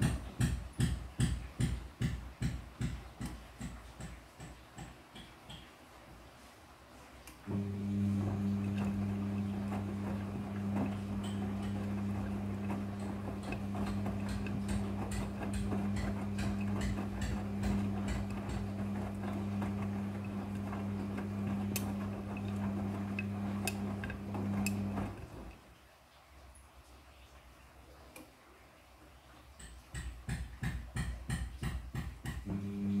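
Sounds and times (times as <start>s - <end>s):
washing machine motor hum: 0.0s - 4.8s, 7.4s - 25.6s, 30.3s - 33.0s.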